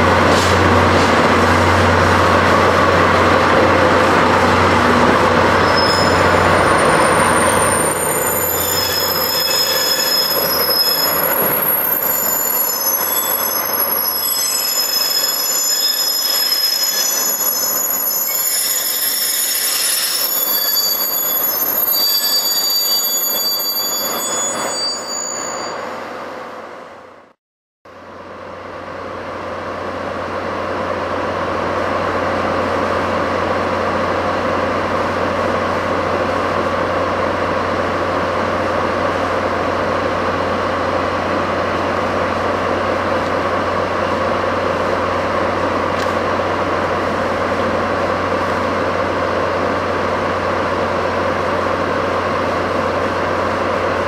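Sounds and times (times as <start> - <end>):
moving train: 0.0 - 54.0.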